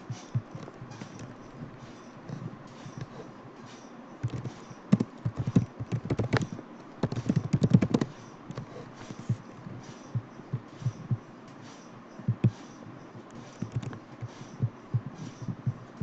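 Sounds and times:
computer keyboard typing: 4.2 - 9.3, 13.6 - 14.4.

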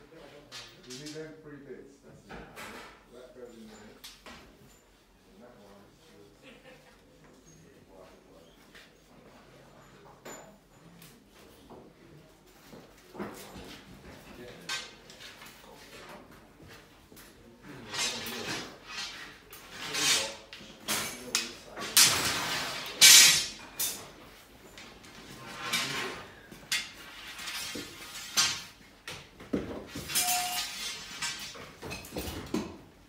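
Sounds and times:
pipes clattering and scraping: 17.6 - 33.0.

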